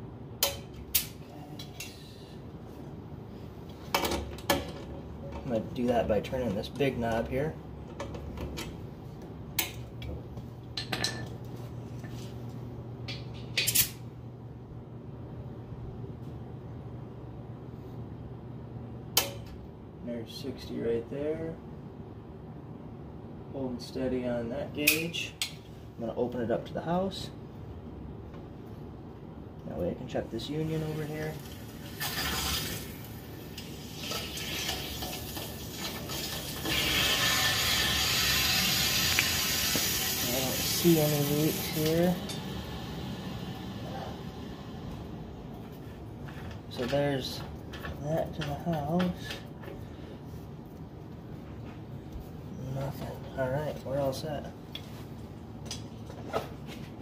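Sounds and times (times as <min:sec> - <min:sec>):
low steady hum: 0:00.0 - 0:57.0
water rushing through valve: 0:33.8 - 0:43.9.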